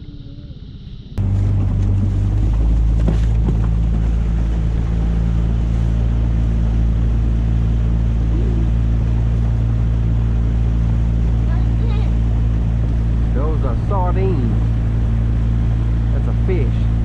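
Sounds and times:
outboard motor running: 1.2 - 17.0
water rushing along hull: 1.2 - 17.0
knocks on boat: 1.3 - 4.6.

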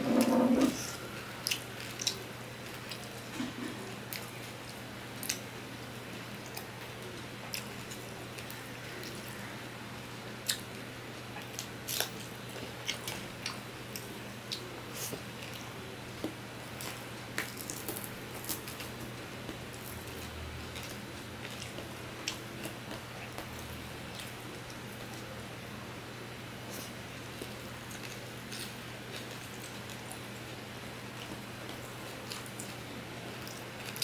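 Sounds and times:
man chewing and smacking: 11.3 - 25.3.

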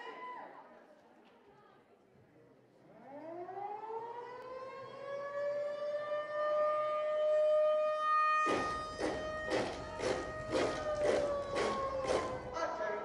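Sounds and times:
air-raid siren wailing: 3.0 - 12.6.

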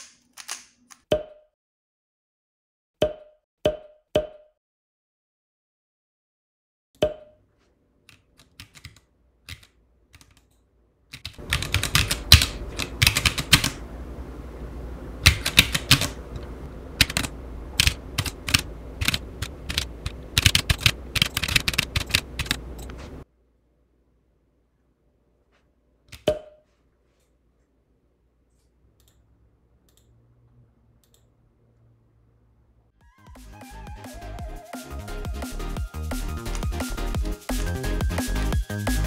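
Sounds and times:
keyboard typing: 8.1 - 13.8, 15.2 - 23.2.

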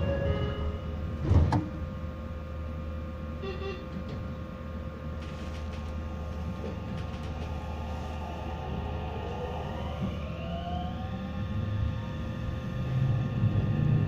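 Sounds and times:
train interior low hum: 0.0 - 14.0
short tone: 3.4 - 4.0
train motor whine rising: 5.3 - 14.0.

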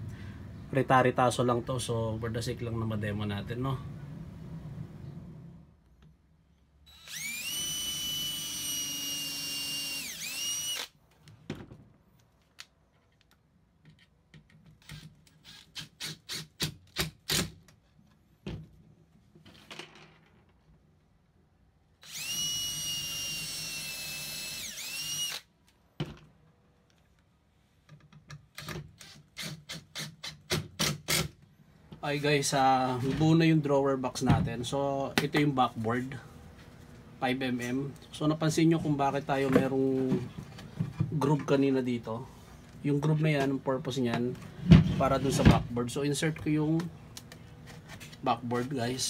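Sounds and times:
cordless drill whining: 6.9 - 11.0, 22.0 - 25.5.

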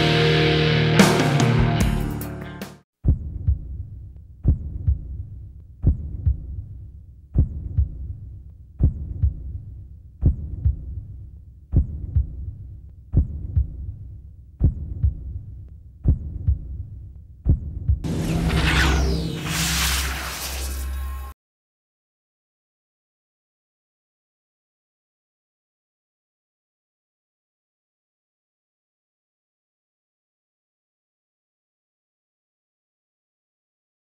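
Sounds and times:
heavy rock music: 0.0 - 2.8
heartbeat thuds: 3.0 - 18.1.

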